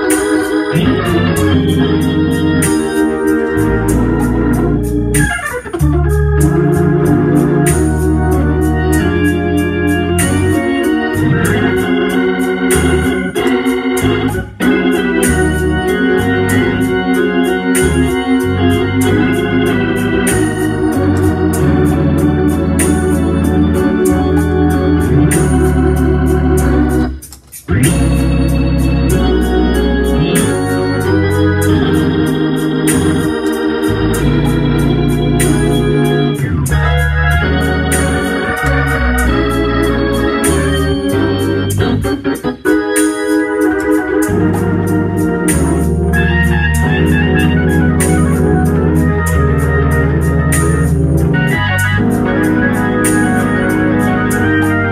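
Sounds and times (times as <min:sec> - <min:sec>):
bass line: 0:00.0 - 0:42.3, 0:44.1 - 0:54.9
organ playing chords: 0:00.0 - 0:54.9.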